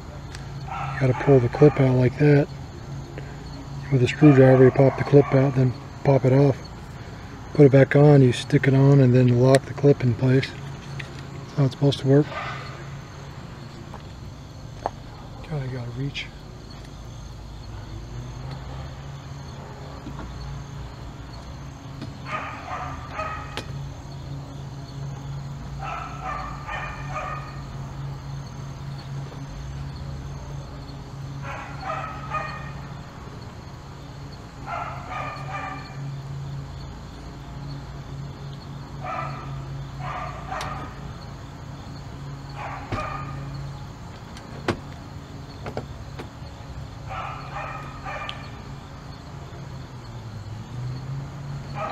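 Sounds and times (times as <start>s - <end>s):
steady low hum: 0.0s - 51.9s
dog barking: 0.7s - 1.9s, 4.2s - 5.6s, 12.3s - 12.7s, 22.2s - 23.6s, 25.8s - 27.7s, 31.4s - 32.8s, 34.6s - 36.1s, 39.0s - 41.0s, 42.5s - 43.5s, 47.1s - 48.5s.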